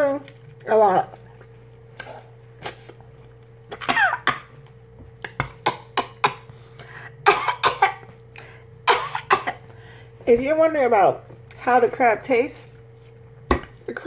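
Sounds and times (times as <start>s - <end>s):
lips smacking and sucking: 2.0s - 3.9s
person coughing: 3.8s - 4.6s, 5.3s - 8.1s, 8.9s - 9.6s.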